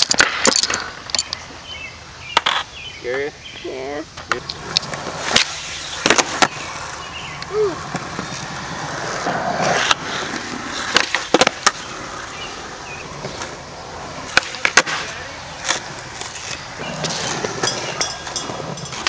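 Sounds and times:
skateboard wheels rolling on concrete: 0.0 - 19.0
skateboard wooden clacks: 2.3 - 2.7, 4.2 - 6.7, 9.2 - 12.1, 14.3 - 19.0.

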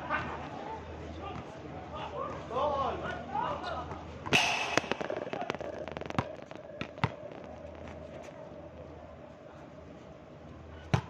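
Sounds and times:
ball being struck: 4.3 - 6.4.

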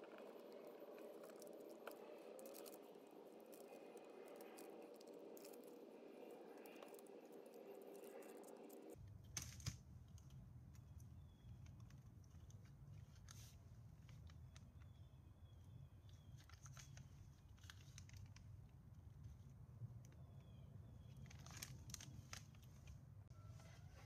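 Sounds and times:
steady low hum: 0.0 - 12.3.

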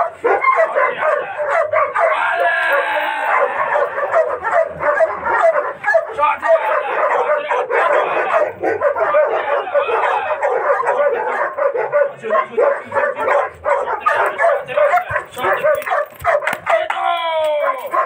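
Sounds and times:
dog barking rapidly: 0.0 - 17.0, 17.6 - 18.0.

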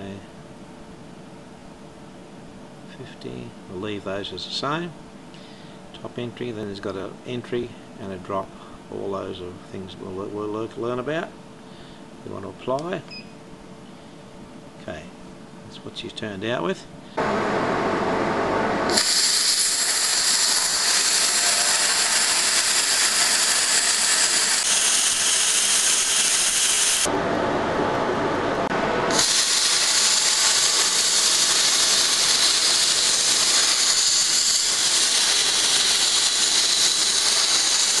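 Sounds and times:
plasma torch hissing: 18.9 - 27.1, 29.1 - 38.0.

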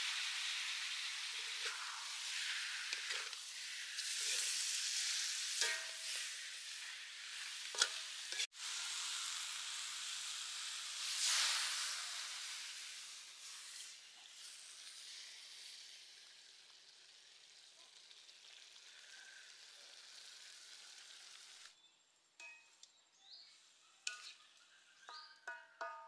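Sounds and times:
food sizzling in a wok: 0.0 - 21.8, 23.3 - 26.0.

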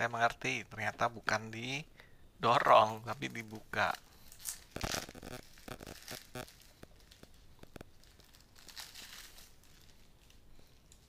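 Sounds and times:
cardboard and plastic rustling: 3.2 - 11.0.

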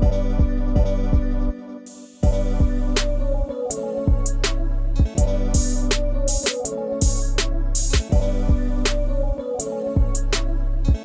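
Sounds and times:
drum beat: 4.1 - 8.8.

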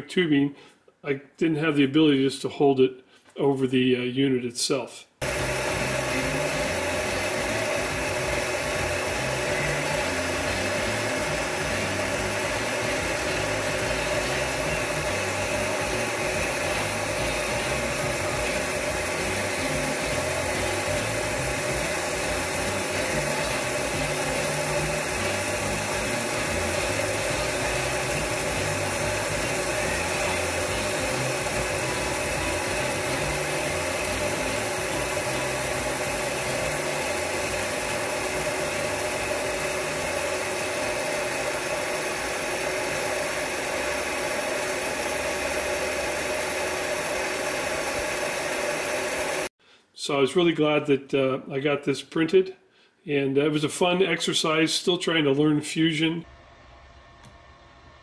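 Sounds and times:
heat gun fan humming and blowing: 5.2 - 49.5.

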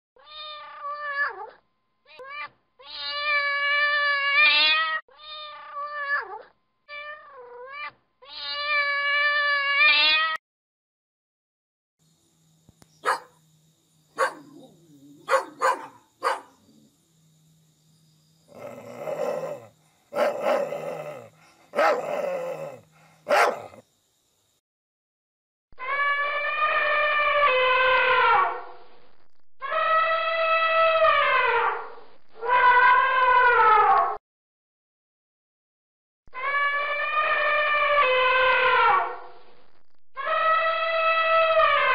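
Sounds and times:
cat meowing: 0.2 - 10.4
elephant trumpeting: 13.0 - 13.3, 15.3 - 16.5, 18.5 - 23.8.

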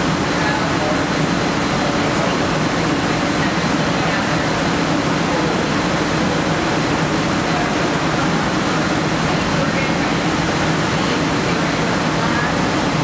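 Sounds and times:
fan blowing rushing air: 0.0 - 13.0.

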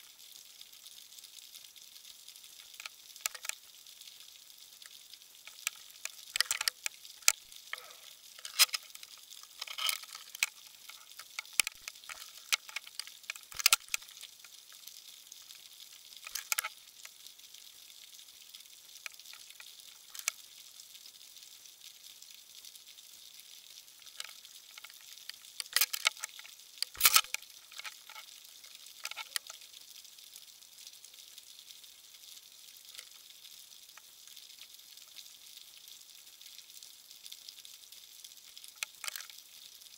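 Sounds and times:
faint steady hiss: 0.0 - 39.9
underwater crackling clicks: 2.6 - 3.6, 4.8 - 14.6, 16.2 - 17.2, 19.0 - 20.4, 24.0 - 29.6, 38.8 - 39.4.

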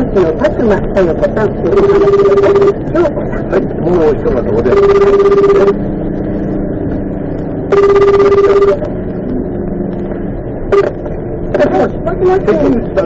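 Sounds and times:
engine and road noise hum: 0.0 - 13.0
telephone ringback tone: 1.7 - 2.8, 4.7 - 5.8, 7.7 - 8.9, 10.7 - 11.0.

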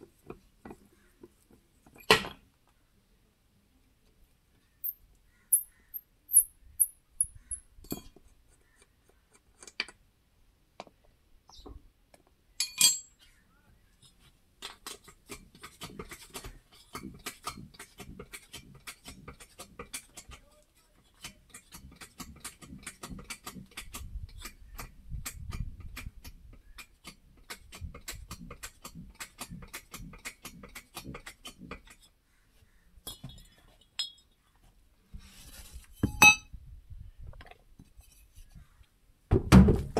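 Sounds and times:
hand tools clinking on steel: 12.6 - 13.2, 33.1 - 34.4.

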